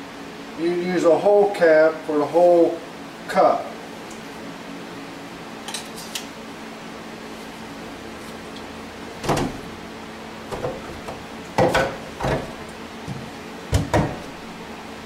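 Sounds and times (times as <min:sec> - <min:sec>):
steady low hum: 0:00.0 - 0:15.0
knocks and clunks on workbench: 0:09.2 - 0:09.7, 0:10.5 - 0:14.4.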